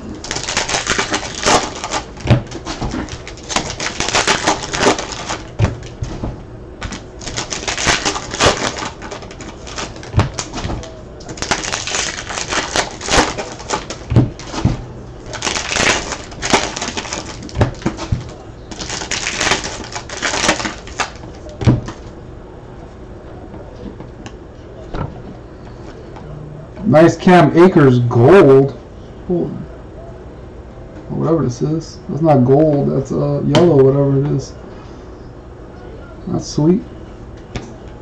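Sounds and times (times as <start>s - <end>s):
cards clicking and rustling: 0.2s - 22.1s.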